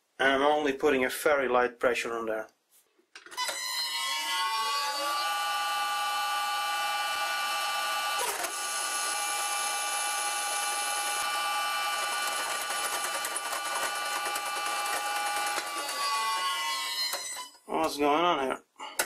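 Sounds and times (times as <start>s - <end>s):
lathe motor humming: 5.2s - 16.5s.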